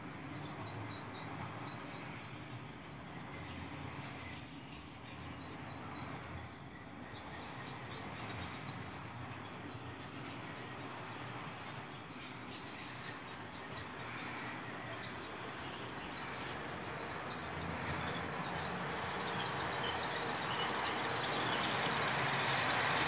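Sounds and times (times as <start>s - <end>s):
model train rattling on rails: 11.0s - 23.0s.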